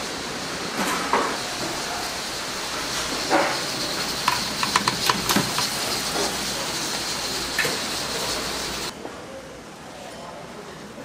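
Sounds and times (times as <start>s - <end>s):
gas broiler hissing: 0.0s - 8.9s.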